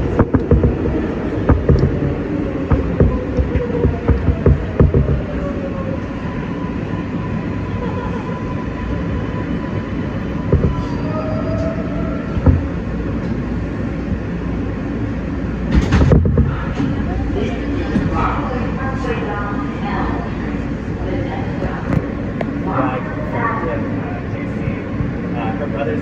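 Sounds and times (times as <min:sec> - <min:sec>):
sharp knocks: 0:00.0 - 0:05.4, 0:10.5 - 0:10.9, 0:12.3 - 0:12.8, 0:15.8 - 0:16.6
subway wheels rumbling on track: 0:00.0 - 0:26.0.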